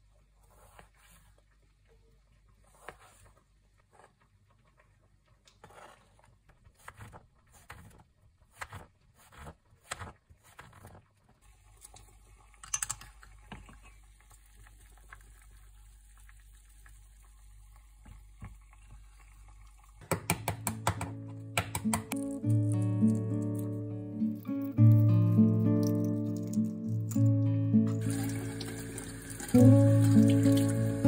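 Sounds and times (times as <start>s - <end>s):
knife chopping on plastic board: 20.0s - 22.2s
plucked guitar music: 20.8s - 31.0s.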